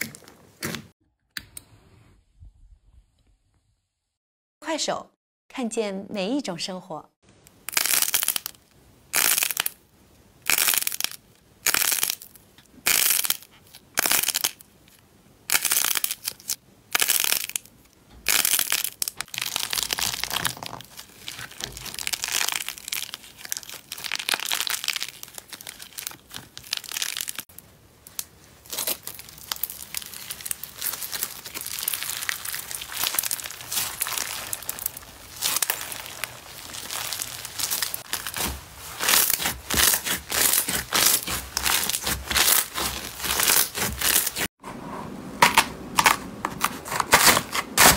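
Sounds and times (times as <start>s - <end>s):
slime balls crunching: 7.7s - 9.8s, 10.4s - 17.7s, 18.3s - 44.5s
slime crinkling and crackling: 7.7s - 9.8s, 10.4s - 17.7s, 18.3s - 44.5s.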